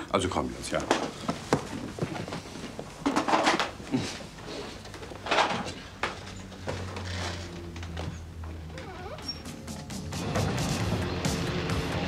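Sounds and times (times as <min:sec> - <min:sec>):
objects rustling and scraping: 0:00.7 - 0:08.6.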